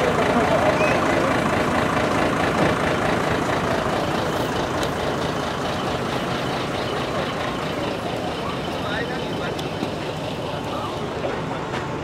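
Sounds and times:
truck diesel engine idling: 0.0s - 12.0s.

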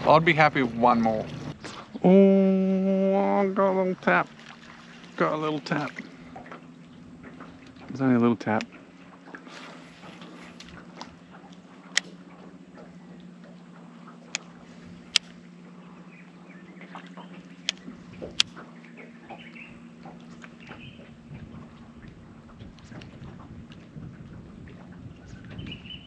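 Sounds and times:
electric trolling motor humming: 0.0s - 26.0s.

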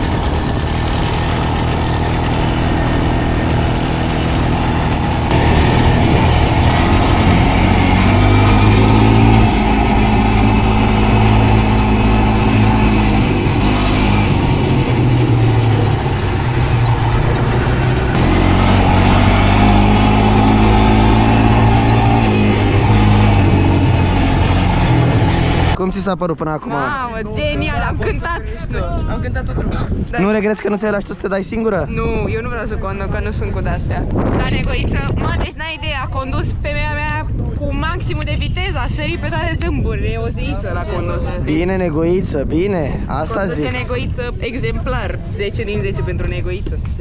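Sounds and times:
quad bike engine revving: 0.0s - 25.8s.

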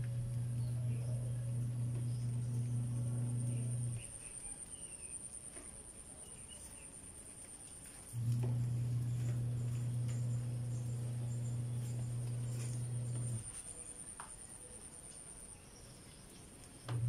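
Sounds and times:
steady high whine: 0.0s - 4.2s, 8.2s - 13.5s
steady low hum: 0.0s - 4.6s, 8.1s - 13.5s, 16.8s - 17.0s.

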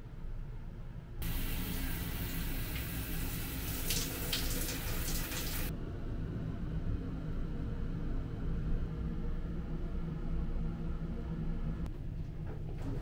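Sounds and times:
shower head spraying water on hand: 1.2s - 5.7s.

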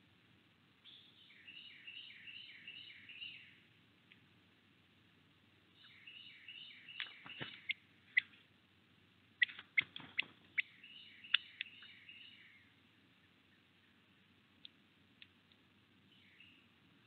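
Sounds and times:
songbird chip notes: 0.8s - 3.6s, 5.7s - 8.4s, 9.4s - 14.0s.

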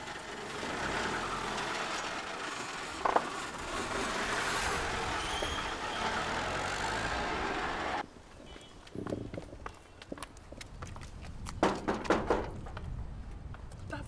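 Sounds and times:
car driving past: 0.3s - 8.0s.

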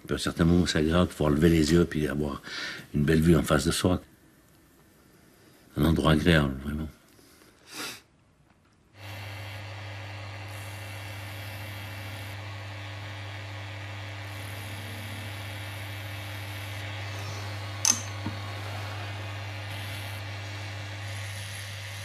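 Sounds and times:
machine motor hum and hiss: 9.0s - 22.0s
sharp click: 17.8s - 18.3s.

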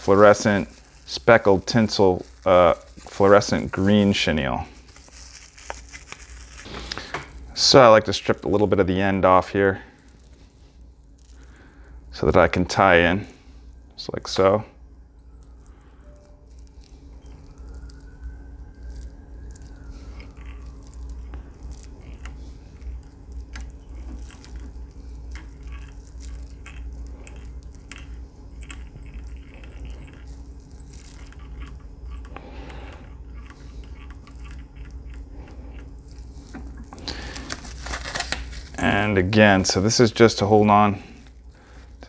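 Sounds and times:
scratchy rustling of thread: 0.0s - 7.6s, 15.2s - 39.1s
low hum: 0.0s - 42.0s.

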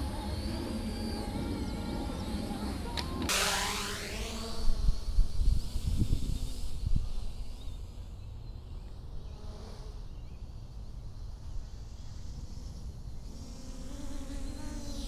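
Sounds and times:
drone propellers buzzing: 0.0s - 8.0s, 11.9s - 15.0s.

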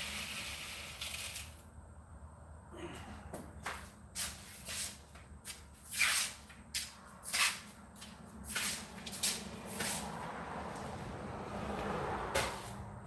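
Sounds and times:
rustling scuffing swishes: 3.6s - 10.8s, 11.8s - 12.8s.

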